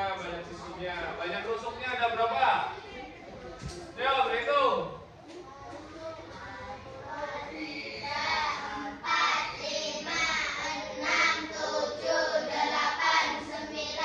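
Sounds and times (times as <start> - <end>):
children counting aloud in chorus: 5.6 - 14.0.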